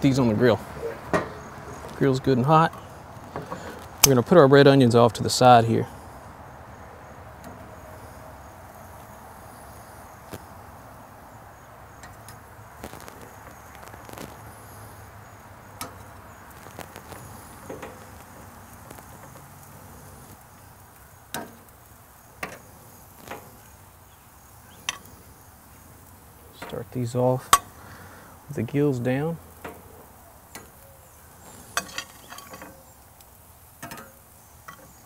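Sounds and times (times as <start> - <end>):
steady faint hiss: 0.0 - 35.0
metal tongs clicking on grill grate: 15.8 - 19.7, 20.3 - 21.8, 22.4 - 23.6, 24.7 - 25.2, 26.6 - 26.8, 27.4 - 27.8, 29.5 - 35.0.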